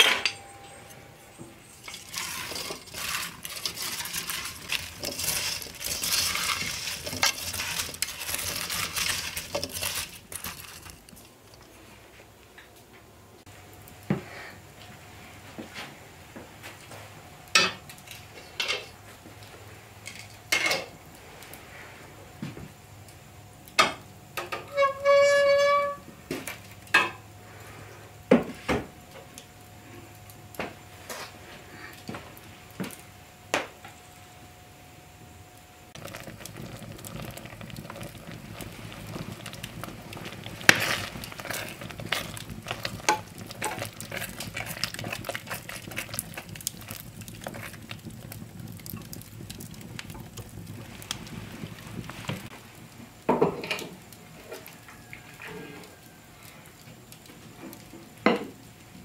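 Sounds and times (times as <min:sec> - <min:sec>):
high ringing tone: 0:00.0 - 0:01.9
wood fire crackling: 0:00.0 - 0:59.0
pot simmering: 0:00.4 - 0:12.5, 0:22.9 - 0:28.5, 0:35.7 - 0:59.0.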